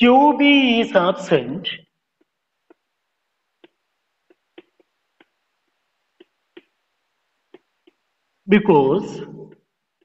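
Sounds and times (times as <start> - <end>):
chalk tapping on blackboard: 2.1 - 8.3, 9.4 - 10.0.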